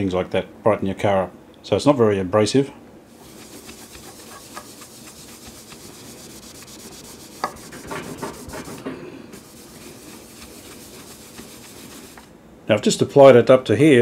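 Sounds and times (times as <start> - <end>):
cloth scrubbing a plastic case: 3.1 - 12.3.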